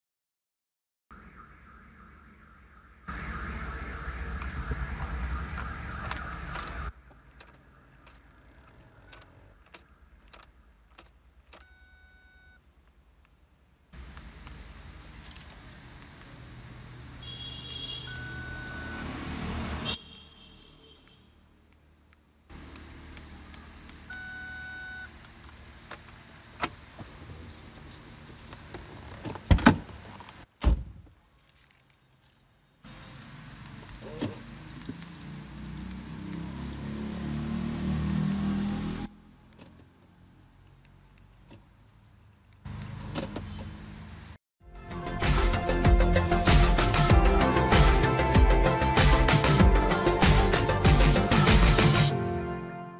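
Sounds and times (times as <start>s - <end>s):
steady in-car noise: 1.1s - 20.0s, 20.8s - 36.4s, 45.2s - 52.1s.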